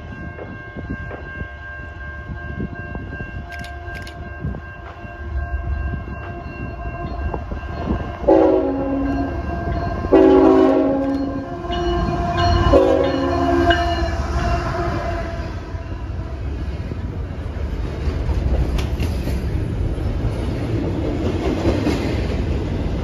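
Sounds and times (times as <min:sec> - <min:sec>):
freight train rushing past: 0:00.0 - 0:23.0
locomotive horn blasts: 0:08.2 - 0:16.3.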